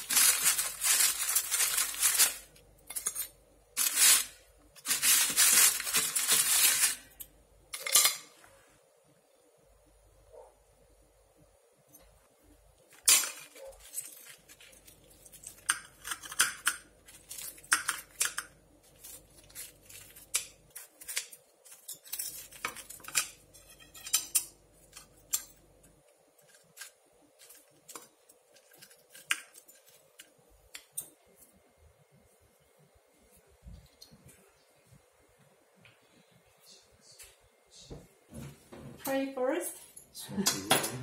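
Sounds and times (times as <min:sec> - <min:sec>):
cutlery clinking on plate: 0:07.8 - 0:08.4
knife crunching through crisp crust: 0:13.4 - 0:25.2.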